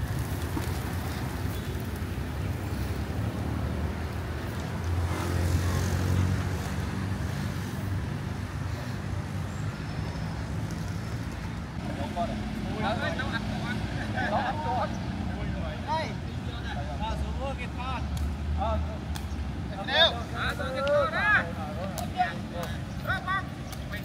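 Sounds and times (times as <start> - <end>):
vehicle passing close: 0.0 - 15.8
traffic engines rumbling: 0.0 - 24.0.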